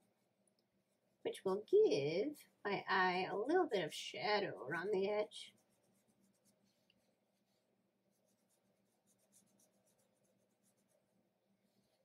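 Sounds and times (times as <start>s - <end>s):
fingertip rubbing pastel on paper: 4.8s - 12.0s.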